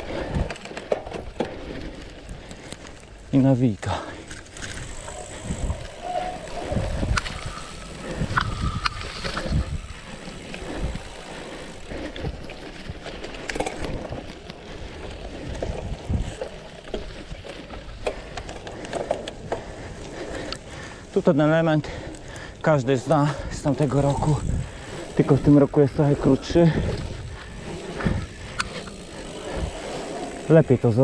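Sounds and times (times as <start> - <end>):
bike tyres rumbling: 0.0 - 31.0
wind buffeting microphone: 4.6 - 20.9, 23.3 - 30.9.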